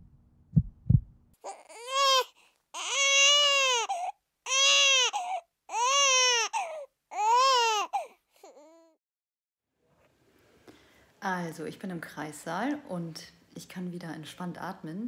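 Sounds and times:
newborn baby crying: 0:01.4 - 0:09.0.

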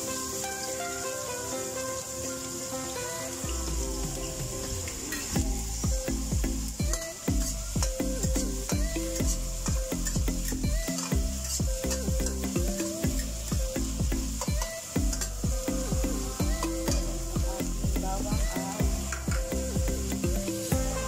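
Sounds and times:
background music with a beat: 0:00.0 - 0:21.0
onions sizzling in hot oil: 0:00.0 - 0:21.0.

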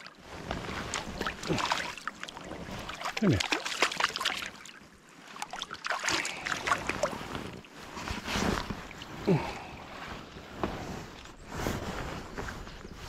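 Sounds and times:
water splashing: 0:00.0 - 0:10.0.

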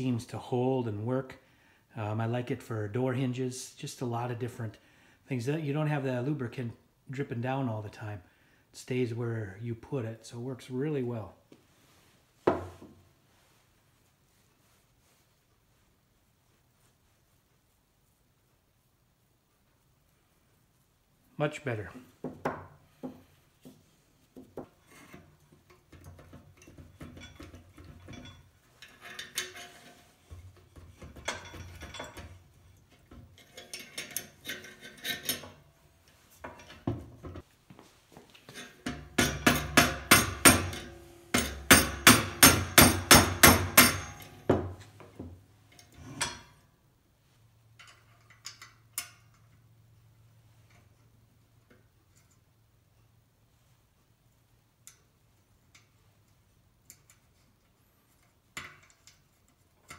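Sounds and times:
metal parts clinking and knocking: 0:25.2 - 0:35.6, 0:38.5 - 0:44.9, 0:47.8 - 0:49.6.

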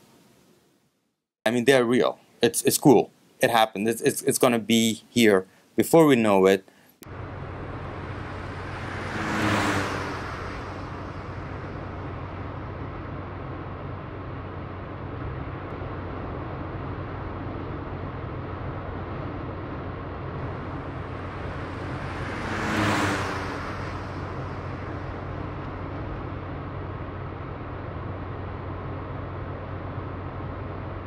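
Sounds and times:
vehicle passing by: 0:07.0 - 0:15.5, 0:20.2 - 0:27.7
road traffic noise: 0:07.0 - 0:31.0.

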